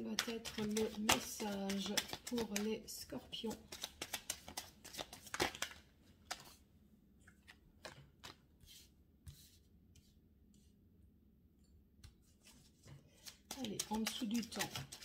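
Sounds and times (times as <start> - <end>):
cards snapping: 3.7 - 6.5.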